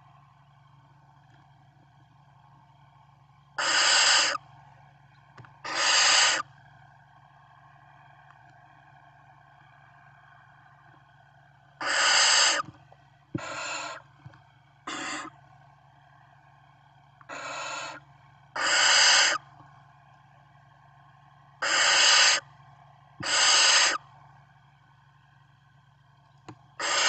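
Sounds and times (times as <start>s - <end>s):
low steady hum: 0.0s - 27.0s
owl nestlings hissing: 3.6s - 4.4s, 5.6s - 6.4s, 11.8s - 12.7s, 13.4s - 14.0s, 14.9s - 15.3s, 17.3s - 18.0s, 18.6s - 19.4s, 21.6s - 22.4s, 23.2s - 24.0s, 26.8s - 27.0s.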